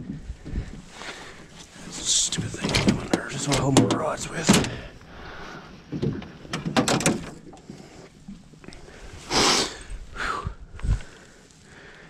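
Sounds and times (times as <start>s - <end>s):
fishing gear clicks and knocks: 2.4s - 4.9s.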